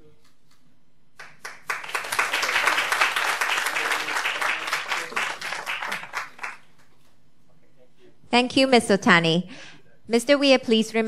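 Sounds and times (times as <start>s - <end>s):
audience applauding: 1.2s - 6.9s.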